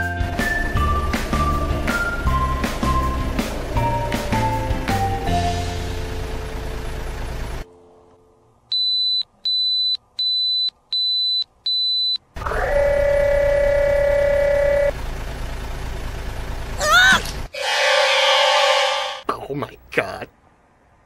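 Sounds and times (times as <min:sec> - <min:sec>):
truck engine rumble: 0:00.0 - 0:07.8, 0:12.3 - 0:17.6
rising mechanical whine: 0:17.5 - 0:19.3.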